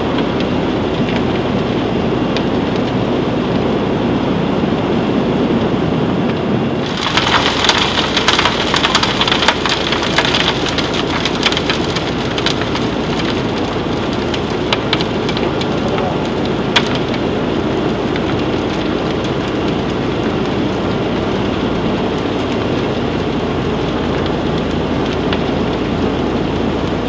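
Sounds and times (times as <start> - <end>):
steady low rumble: 0.0 - 27.0
granules pouring onto steel: 6.8 - 17.1.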